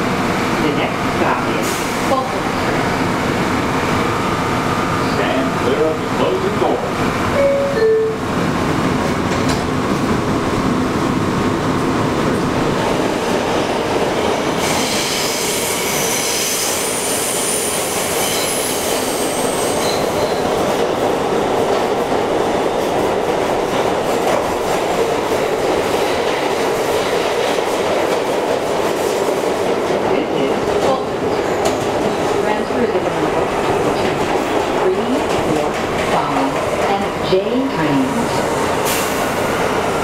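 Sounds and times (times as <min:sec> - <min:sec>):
high-pitched wheel squeal: 0:14.6 - 0:20.4.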